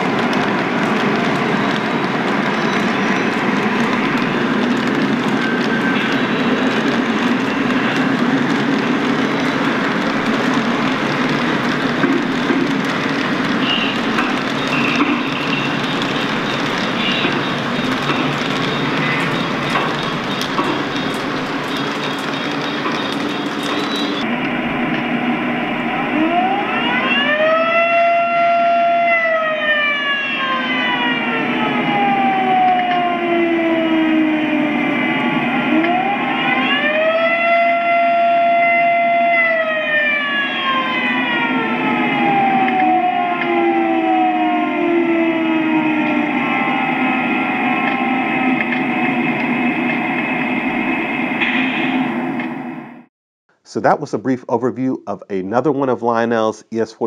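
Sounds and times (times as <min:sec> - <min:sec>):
model train rumbling on track: 0:00.0 - 0:26.6
siren winding up and down: 0:25.8 - 0:50.9.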